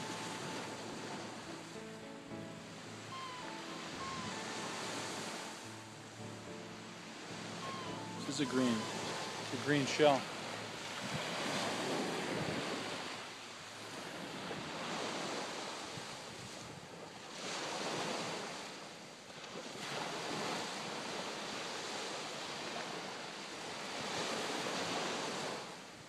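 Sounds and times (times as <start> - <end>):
ocean surf breaking: 0.0 - 16.0
wind buffeting microphone: 11.0 - 13.0.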